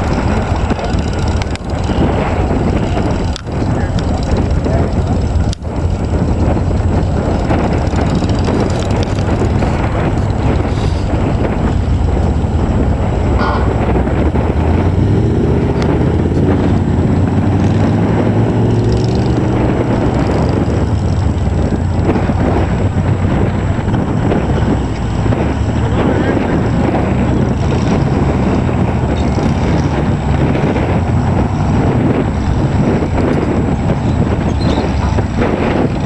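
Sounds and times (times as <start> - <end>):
truck engines revving: 0.0 - 36.0
wind on microphone: 0.0 - 36.0.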